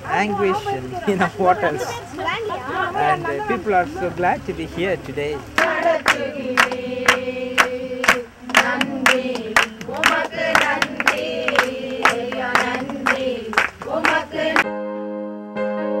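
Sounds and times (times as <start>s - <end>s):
hands clapping in time: 5.0s - 14.6s
group of people singing: 5.4s - 14.6s.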